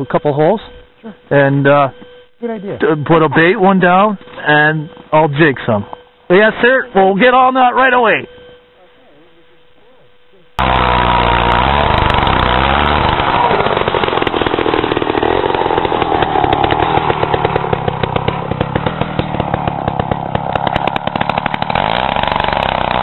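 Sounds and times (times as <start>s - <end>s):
ice auger engine labouring: 10.6s - 23.0s.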